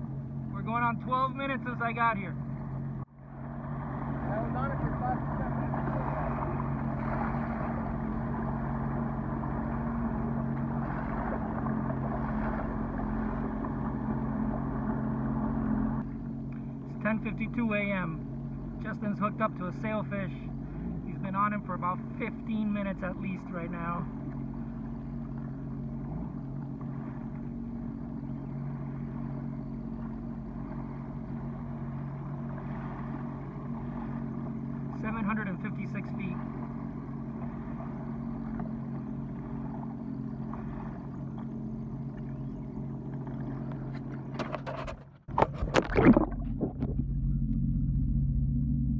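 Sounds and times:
constant rushing noise: 0:00.0 - 0:48.9
watercraft engine drone: 0:00.0 - 0:48.9
rushing water: 0:03.4 - 0:16.0.

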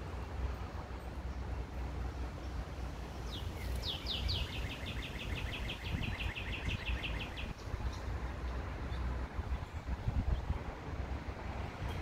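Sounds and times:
songbird calling: 0:02.4 - 0:10.5.

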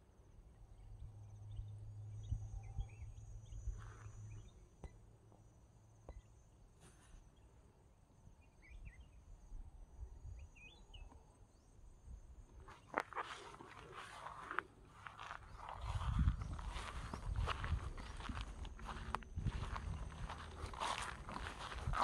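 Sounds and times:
bird chirps: 0:08.4 - 0:09.3, 0:10.2 - 0:11.8.

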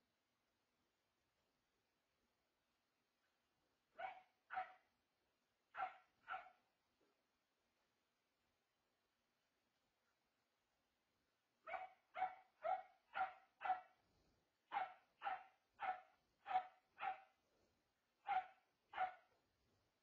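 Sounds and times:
dog barking: 0:03.9 - 0:04.9, 0:05.7 - 0:06.6, 0:11.6 - 0:14.0, 0:14.7 - 0:17.4, 0:18.2 - 0:19.4.

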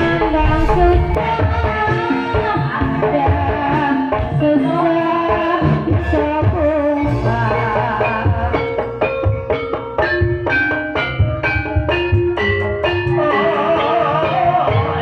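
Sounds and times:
hand drums: 0:07.8 - 0:15.0.

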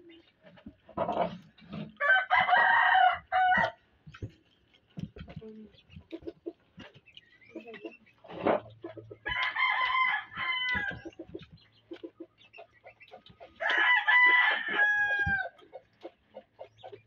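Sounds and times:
rooster crowing: 0:02.0 - 0:03.8, 0:09.3 - 0:11.0, 0:13.6 - 0:15.5.

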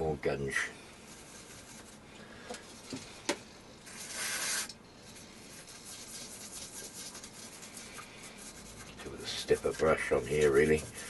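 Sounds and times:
brush scrubbing: 0:00.9 - 0:03.0, 0:03.8 - 0:11.0
aerosol spray hiss: 0:03.9 - 0:04.7.

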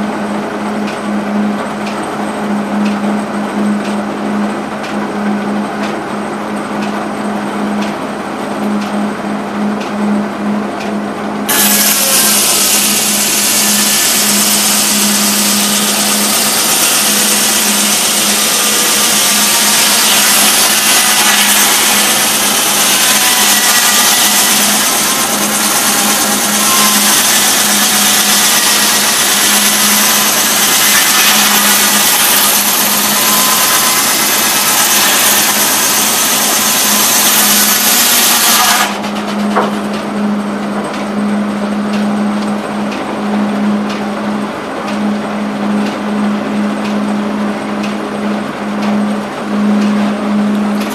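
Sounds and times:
steady low hum: 0:00.0 - 0:19.7, 0:38.9 - 0:50.9
circular saw cutting log: 0:00.0 - 0:50.9.

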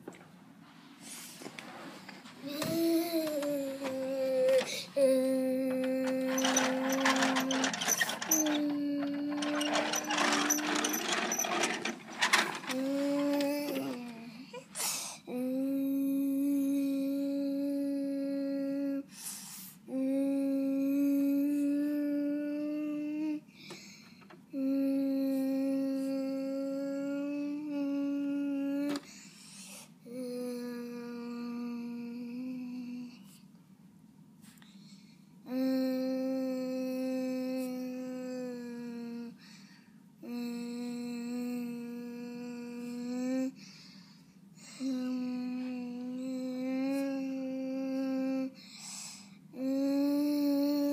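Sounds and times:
child breathing: 0:00.9 - 0:01.5, 0:02.9 - 0:05.3, 0:14.0 - 0:15.3, 0:19.1 - 0:19.8, 0:23.5 - 0:24.3, 0:39.4 - 0:40.0, 0:43.6 - 0:45.0, 0:48.6 - 0:49.4
child humming: 0:02.4 - 0:19.1, 0:19.9 - 0:23.5, 0:24.5 - 0:29.0, 0:30.0 - 0:33.3, 0:35.4 - 0:39.4, 0:40.2 - 0:43.6, 0:44.7 - 0:48.6, 0:49.5 - 0:50.9.

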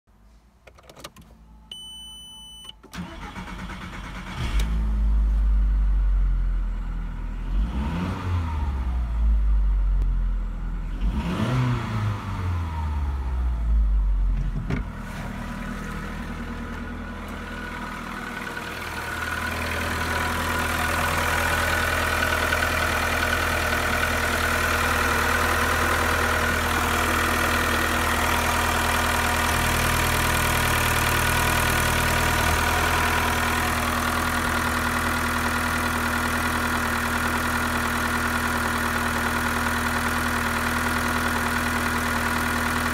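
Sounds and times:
single beep: 0:01.6 - 0:02.9
car engine starting and revving: 0:02.9 - 0:42.9
car engine idling: 0:13.5 - 0:42.9.

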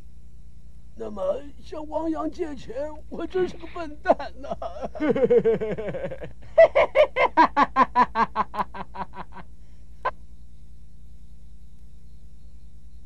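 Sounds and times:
man laughing in bursts: 0:03.2 - 0:09.5
man laughing loudly: 0:03.2 - 0:09.5.

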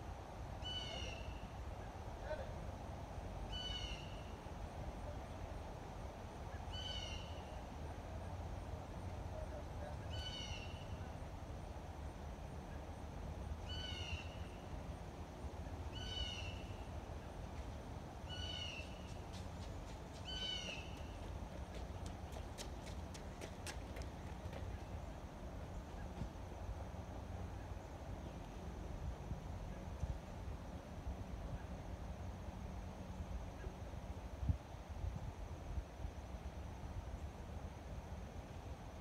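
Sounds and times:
low outdoor background noise: 0:00.0 - 0:39.0
bird calling: 0:00.6 - 0:01.5, 0:03.5 - 0:04.4, 0:06.5 - 0:07.6, 0:10.0 - 0:11.2, 0:13.6 - 0:14.7, 0:15.9 - 0:16.9, 0:18.3 - 0:19.2, 0:20.2 - 0:21.3.

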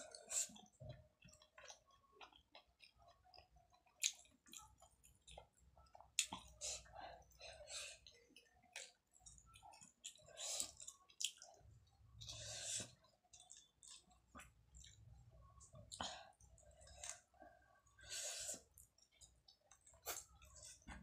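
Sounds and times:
person chewing: 0:00.0 - 0:06.9, 0:07.8 - 0:15.0, 0:18.5 - 0:21.0.

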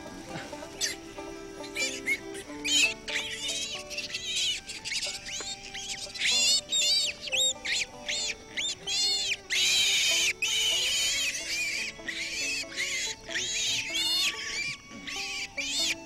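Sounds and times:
piglets squealing: 0:00.0 - 0:16.0
soft background music: 0:00.0 - 0:16.0.

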